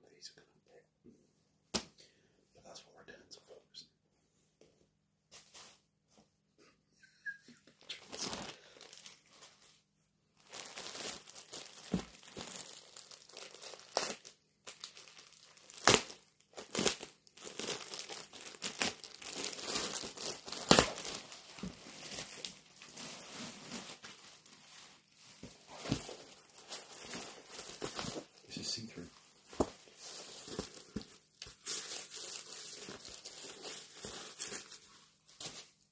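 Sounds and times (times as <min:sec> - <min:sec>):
plastic bag crinkling: 0:08.0 - 0:09.8, 0:10.4 - 0:35.8.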